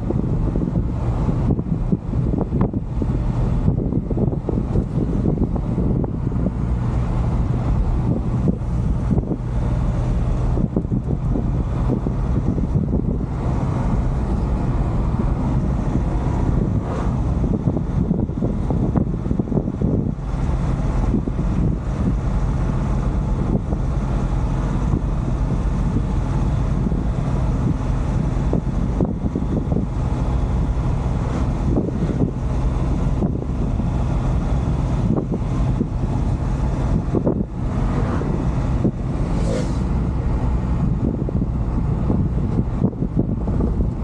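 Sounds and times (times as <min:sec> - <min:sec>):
truck engine and road noise: 0:00.0 - 0:44.0.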